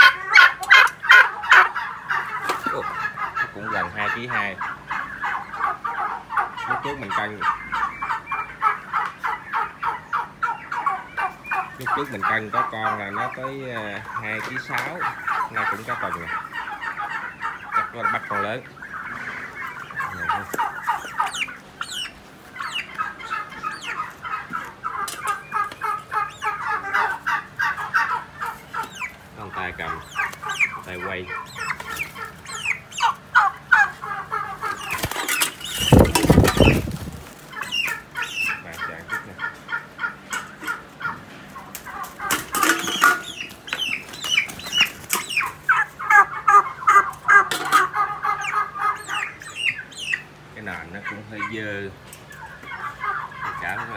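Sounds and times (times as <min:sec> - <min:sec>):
turkey chicks peeping and clucking: 0:00.0 - 0:53.9
wings flapping: 0:34.6 - 0:38.0.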